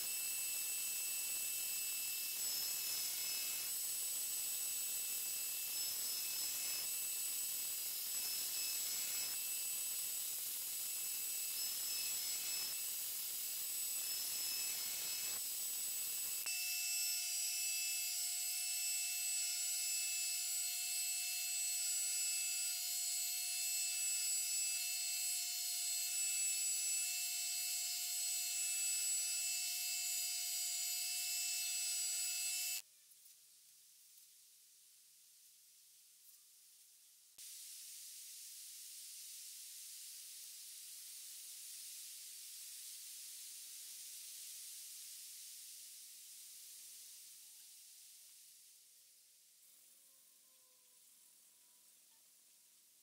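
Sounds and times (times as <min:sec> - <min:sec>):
belt grinder whine: 0:00.0 - 0:32.8.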